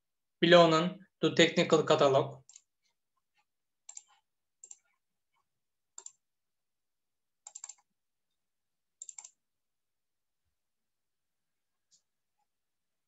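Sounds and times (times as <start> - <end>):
computer mouse clicks: 2.4 - 2.7, 3.8 - 5.0, 6.0 - 6.2, 7.4 - 7.9, 9.0 - 9.4.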